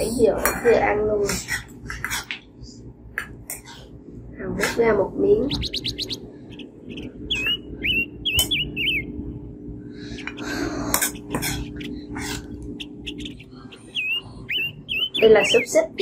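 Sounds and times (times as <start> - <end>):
small bird chirping: 5.2 - 9.2, 10.1 - 16.0.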